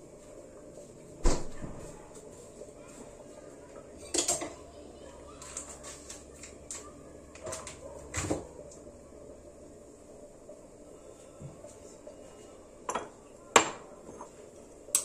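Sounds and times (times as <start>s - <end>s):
dishes and utensils clinking: 4.0s - 4.6s, 12.8s - 15.0s.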